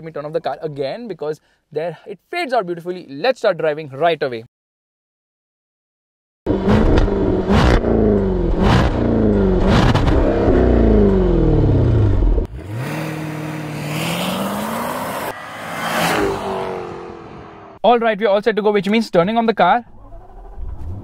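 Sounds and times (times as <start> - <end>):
exhaust crackles and pops: 6.5 - 12.5
car accelerating away: 6.5 - 17.8
car engine revving: 6.5 - 17.8.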